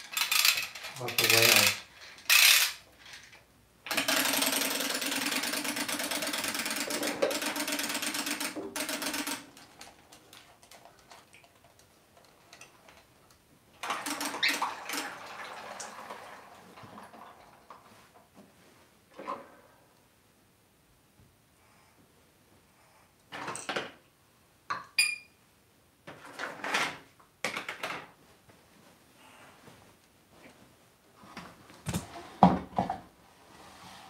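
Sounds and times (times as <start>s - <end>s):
toy whirring in water: 0.0s - 2.8s
toy motor buzzing and rattling: 0.0s - 3.3s, 3.9s - 9.5s.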